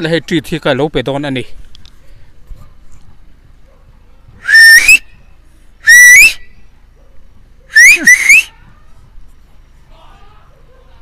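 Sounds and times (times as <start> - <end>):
rising whistle calls: 4.4 - 6.8, 7.7 - 8.6.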